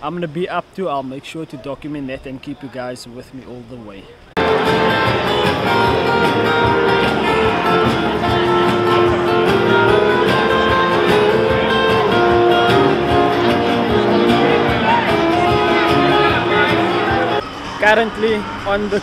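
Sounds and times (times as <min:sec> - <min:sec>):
plucked guitar music: 0:04.4 - 0:17.4.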